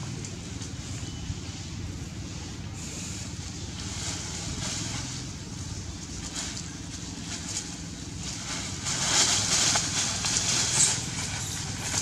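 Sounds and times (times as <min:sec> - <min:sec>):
wind rumble on microphone: 0:00.0 - 0:12.0
plastic bag and leaves rustling: 0:02.2 - 0:12.0.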